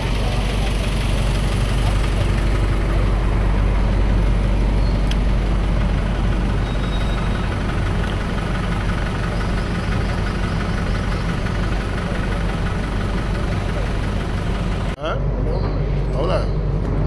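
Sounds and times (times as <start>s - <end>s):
generator engine humming: 0.0s - 17.0s.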